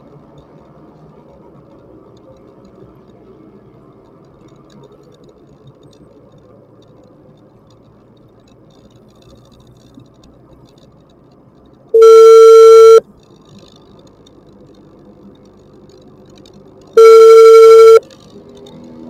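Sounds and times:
moving vehicle noise: 0.0 - 19.0
loud one-pitch beep: 12.0 - 13.0, 17.0 - 18.0.

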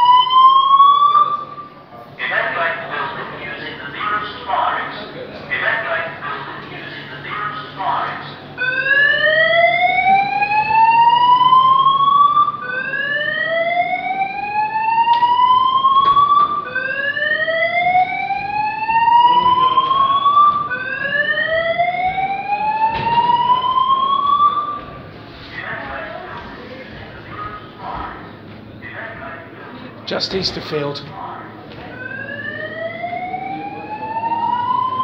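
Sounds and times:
fire alarm whooping: 0.0 - 1.8, 8.5 - 25.0, 31.8 - 35.0.

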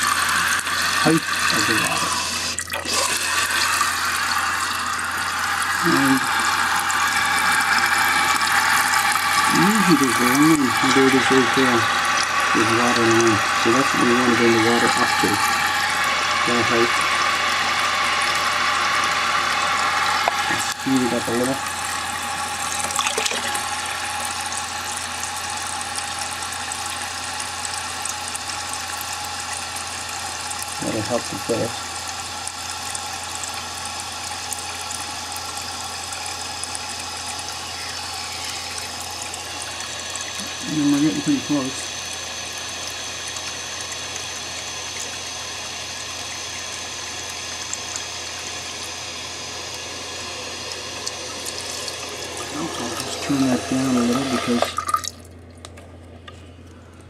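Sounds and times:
water hissing through valve: 0.0 - 55.3
toilet tank refilling: 0.0 - 55.9
thin steady tone: 3.7 - 18.3, 27.6 - 54.8.

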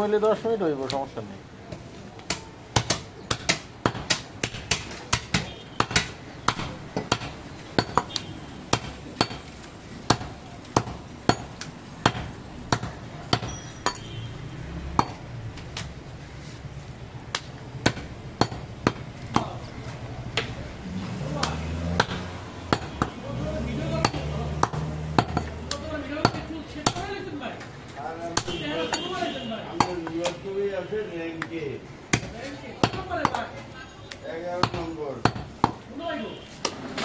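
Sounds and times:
cleaver chopping on wooden block: 2.2 - 14.0, 17.3 - 19.5, 20.4 - 23.2, 23.9 - 27.2, 28.3 - 28.6, 32.1 - 33.5, 34.6 - 35.8.

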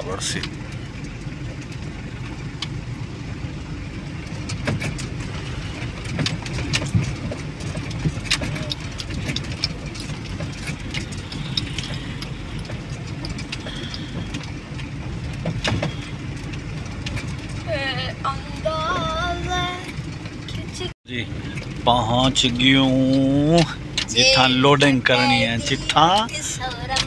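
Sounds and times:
truck engine low rumble: 0.0 - 27.0
cab knocks and rattles: 4.1 - 17.8.

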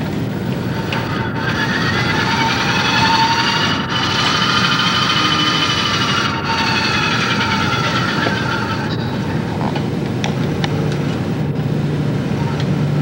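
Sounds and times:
robot arm motors whining: 0.0 - 11.7
steady mechanical rumble: 0.0 - 13.0.

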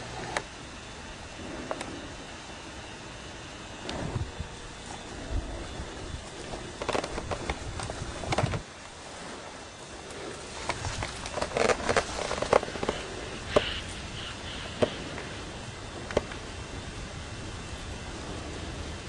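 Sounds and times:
dry reeds and twigs rustling: 0.0 - 19.0
twigs snapping: 6.4 - 8.6, 10.6 - 14.0.

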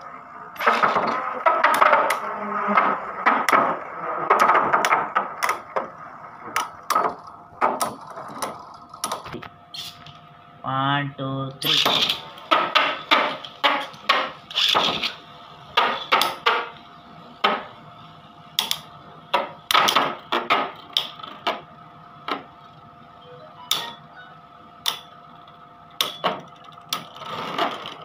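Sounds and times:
spinning tops clacking: 11.6 - 15.2, 23.6 - 24.1.

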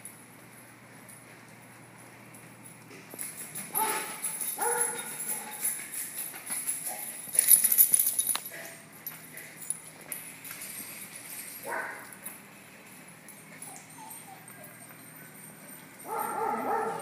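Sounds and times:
metallic jingling and rattling: 0.0 - 17.0
small dogs barking: 3.7 - 5.7, 11.6 - 12.2, 16.0 - 17.0.

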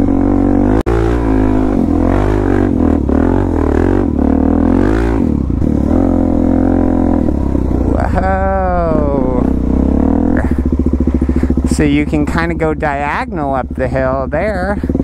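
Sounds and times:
motorcycle engine revving: 0.0 - 15.0.

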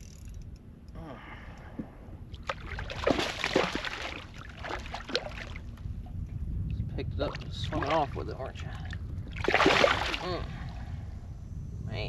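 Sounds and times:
water splashing: 2.4 - 5.7, 7.3 - 10.4.

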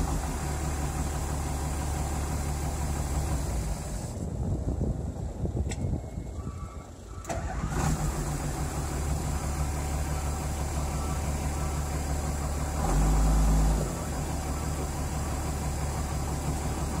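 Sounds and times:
excavator diesel engine idling: 0.0 - 17.0.

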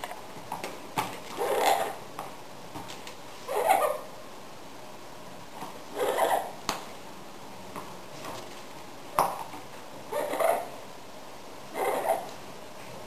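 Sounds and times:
parrot rough squawks: 1.4 - 2.0, 3.5 - 4.1, 5.9 - 6.6, 10.1 - 10.8, 11.7 - 12.3.

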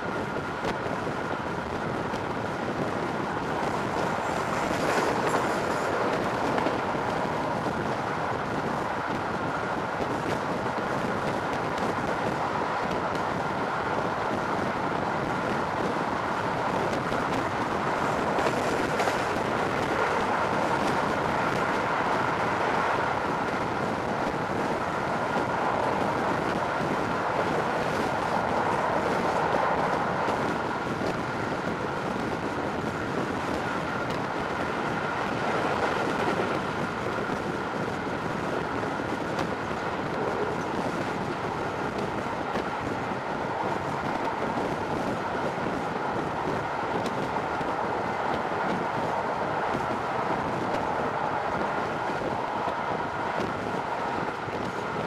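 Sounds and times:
train wheels on rails: 0.0 - 55.0.

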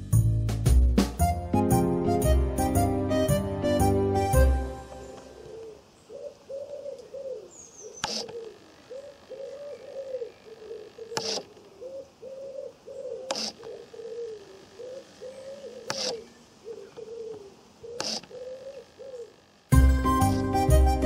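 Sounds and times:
pigeon cooing: 5.1 - 21.0
switch click and servo whir: 8.0 - 8.4, 11.2 - 11.5, 13.3 - 13.7, 15.9 - 16.2, 18.0 - 18.4.

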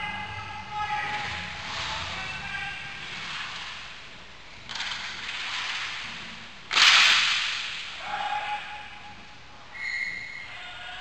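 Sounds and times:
hockey stick smack: 6.7 - 7.9.

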